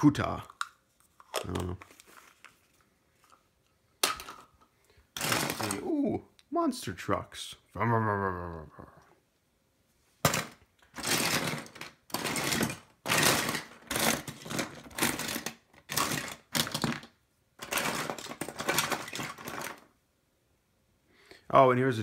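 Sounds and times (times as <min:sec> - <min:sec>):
toy parts rattling in plastic tub: 0:04.0 - 0:06.0, 0:10.2 - 0:20.0.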